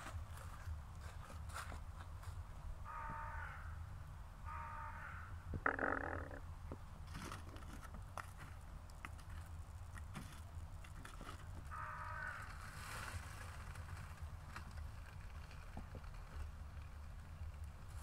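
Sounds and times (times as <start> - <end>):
crow cawing: 2.8 - 6.4, 11.7 - 12.6.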